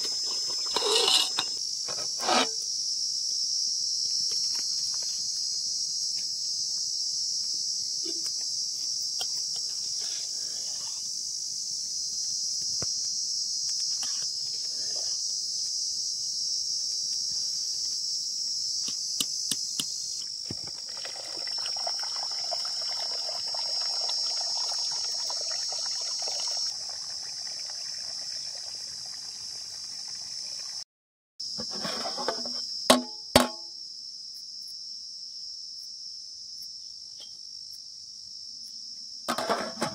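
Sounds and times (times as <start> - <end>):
crickets chirring: 0.0 - 30.8, 31.4 - 39.9
pot bubbling and sloshing: 20.6 - 30.8.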